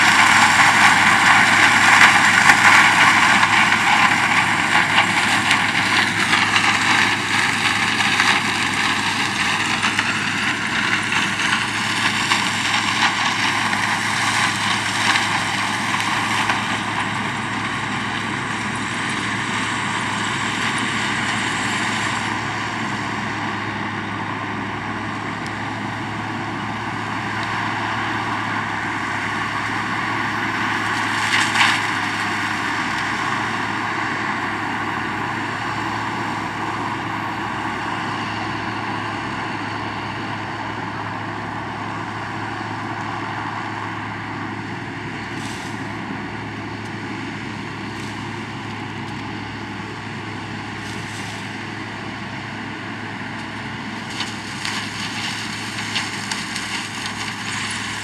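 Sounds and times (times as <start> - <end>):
crackling clatter of cane pouring: 0.0 - 58.0
diesel engine running under load: 0.0 - 58.0.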